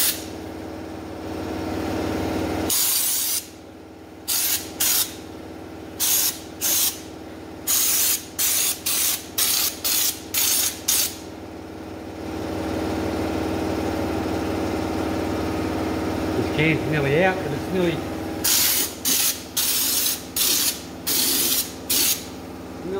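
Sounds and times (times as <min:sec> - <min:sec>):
spray gun hissing bursts: 0:02.7 - 0:03.5, 0:04.3 - 0:05.2, 0:06.0 - 0:07.0, 0:07.7 - 0:11.2, 0:18.4 - 0:22.3
motor hum: 0:03.5 - 0:22.9.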